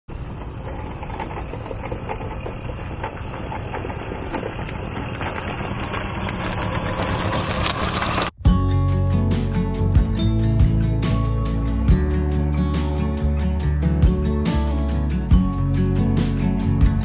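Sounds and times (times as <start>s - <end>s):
moped engine running: 0.1s - 8.4s
guitar music: 8.4s - 17.0s.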